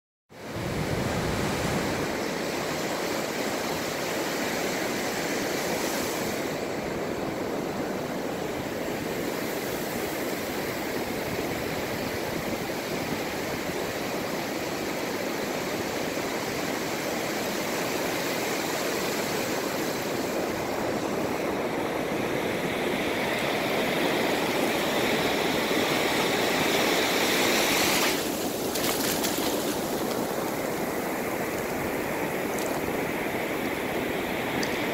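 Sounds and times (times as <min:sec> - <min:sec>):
waves breaking on beach: 0:00.4 - 0:34.9
water running over sand: 0:22.9 - 0:34.9.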